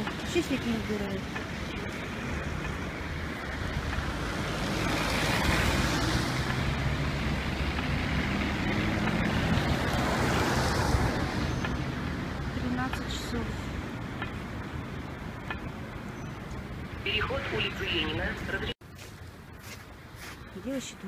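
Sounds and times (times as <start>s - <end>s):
vehicle engine passing: 0.2s - 16.0s.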